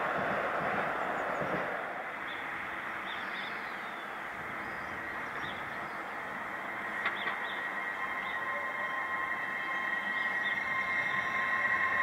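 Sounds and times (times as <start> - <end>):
railway trackside background noise: 0.0 - 12.0
high-pitched whine: 4.5 - 12.0
faint bird chirps: 7.0 - 12.0.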